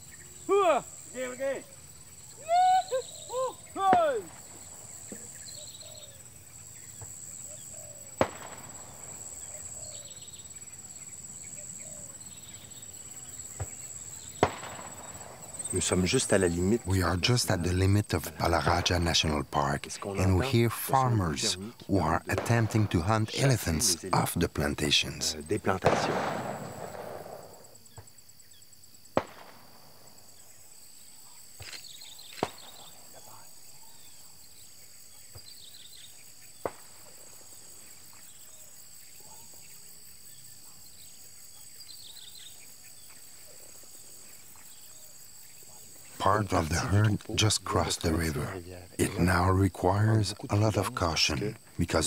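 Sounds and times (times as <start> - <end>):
faint bird calls: 0.0 - 24.2
insects droning: 0.0 - 52.0
distant firecracker bangs: 3.8 - 5.4, 8.2 - 9.7, 13.5 - 16.2, 22.3 - 23.6, 25.7 - 28.2, 29.1 - 30.1, 36.6 - 37.2
bangs: 14.4 - 16.2.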